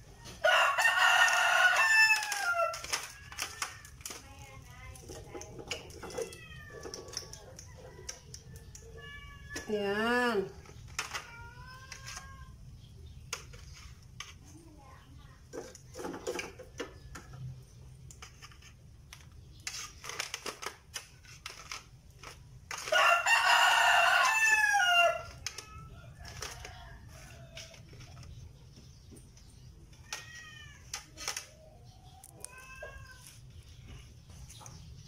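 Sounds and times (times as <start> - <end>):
rooster crowing: 0.4 - 2.8, 22.9 - 25.3.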